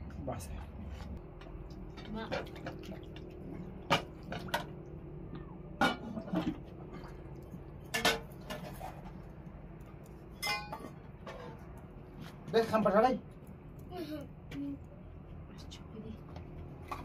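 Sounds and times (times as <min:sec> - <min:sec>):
metal pots and lid clanking: 0:05.8 - 0:06.7, 0:07.8 - 0:09.2, 0:10.3 - 0:11.8.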